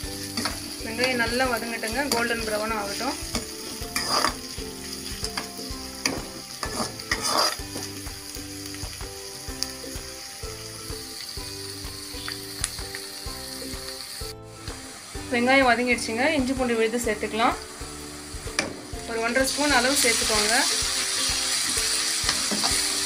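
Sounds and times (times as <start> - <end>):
onions sizzling in oil: 0.0 - 23.0
spatula scraping pan: 2.1 - 4.5, 5.2 - 7.9.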